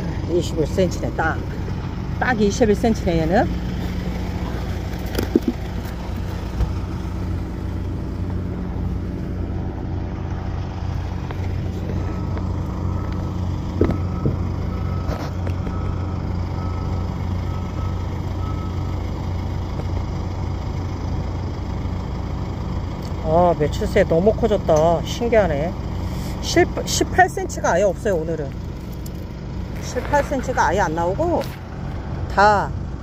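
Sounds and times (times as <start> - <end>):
engine idling: 0.0 - 33.0
reversing alarm beeps: 12.0 - 18.9.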